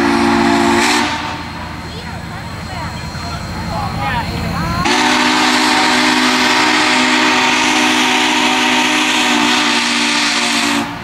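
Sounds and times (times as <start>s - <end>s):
steam whistle blast: 0.0s - 1.6s, 4.8s - 11.0s
steam hissing: 0.0s - 11.0s.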